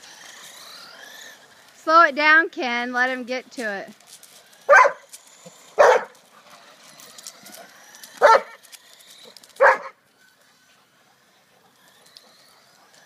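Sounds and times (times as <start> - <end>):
dog barking: 4.7 - 5.1, 5.8 - 6.2, 8.2 - 8.6, 9.6 - 10.0.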